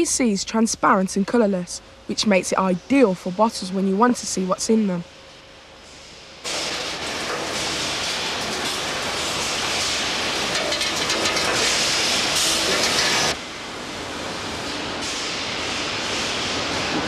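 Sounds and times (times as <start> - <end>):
machinery hiss: 5.8 - 17.0.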